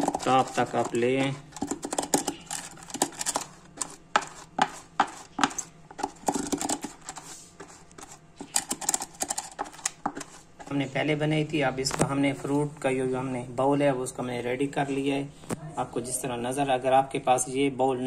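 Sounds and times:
pastry brush scraping plastic mould: 0:00.0 - 0:11.0.

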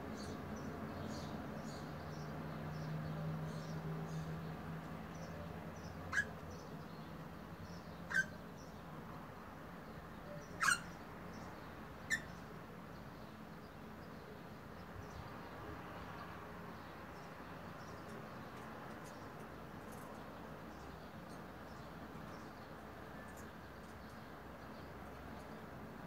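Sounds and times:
parrot sharp calls: 0:06.1 - 0:06.3, 0:08.1 - 0:08.4, 0:10.6 - 0:11.0.

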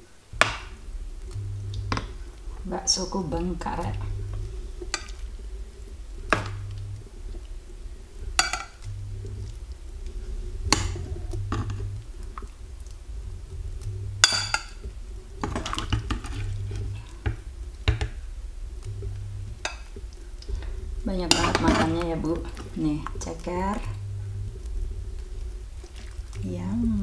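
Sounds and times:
spoon scraping and stirring: 0:08.4 - 0:09.1.

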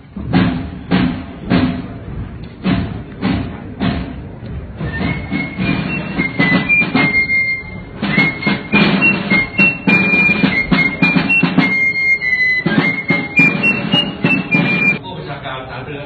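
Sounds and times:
marching drum beats: 0:00.0 - 0:15.0
flute melody: 0:04.8 - 0:15.0.

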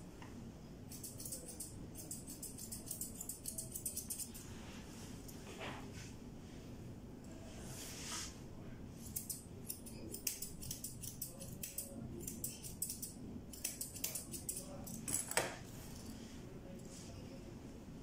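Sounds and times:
scissors snipping fur: 0:00.9 - 0:04.4, 0:09.0 - 0:15.1.

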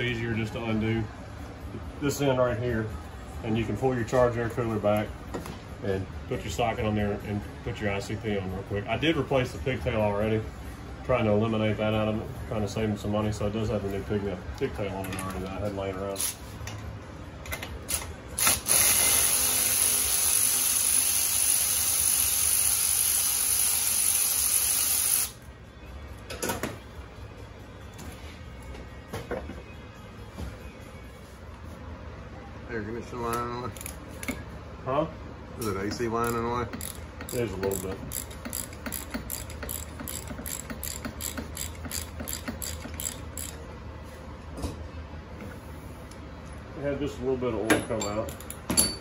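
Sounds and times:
cordless ratchet running: 0:17.9 - 0:25.4, 0:36.2 - 0:43.6.

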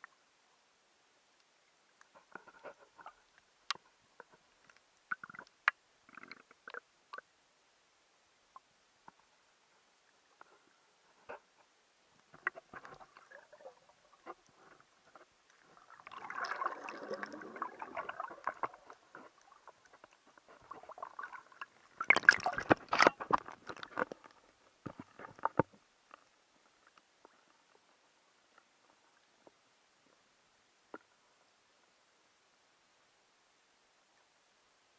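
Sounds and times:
underwater clicks and crackles: 0:01.3 - 0:07.3, 0:08.5 - 0:09.4, 0:10.0 - 0:32.0
gurgling water: 0:05.1 - 0:07.3, 0:12.3 - 0:25.8
knocks and splashes: 0:20.6 - 0:24.1.

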